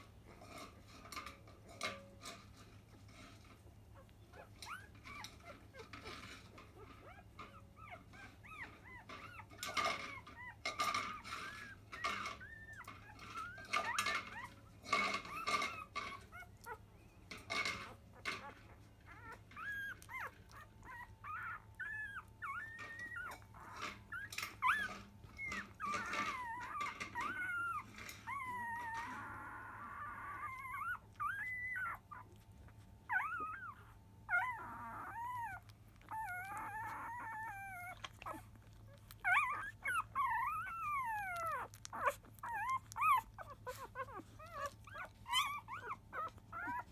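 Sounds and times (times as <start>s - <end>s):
puppies squeaking and whimpering: 0.1s - 46.9s.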